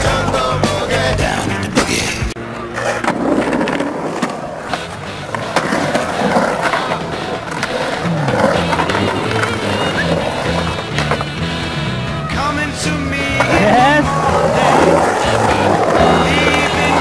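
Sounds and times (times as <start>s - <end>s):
skateboard wheels rolling on concrete: 0.0s - 17.0s
skateboard clacking on concrete: 2.6s - 11.5s, 13.2s - 17.0s.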